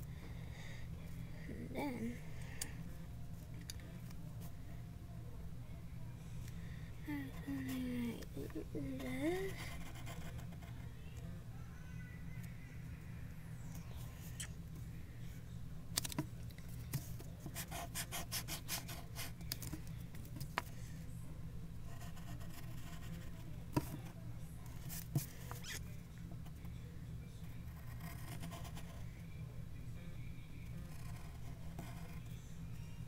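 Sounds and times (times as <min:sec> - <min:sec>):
steady low hum: 0:00.0 - 0:33.0
pencil drawing on paper: 0:08.8 - 0:10.7, 0:17.5 - 0:19.4, 0:21.9 - 0:24.0, 0:27.7 - 0:29.0, 0:30.8 - 0:32.2.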